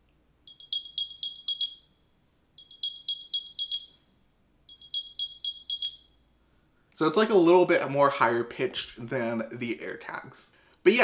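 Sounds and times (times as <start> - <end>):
rapid high-pitched chirps: 0.4 - 4.0, 4.6 - 6.3.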